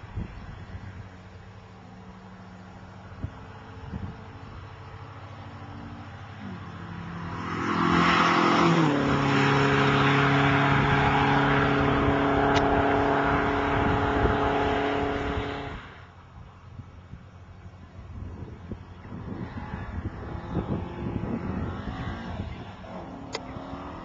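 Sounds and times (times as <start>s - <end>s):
car engine driving past at speed: 5.1s - 16.1s, 19.0s - 24.0s.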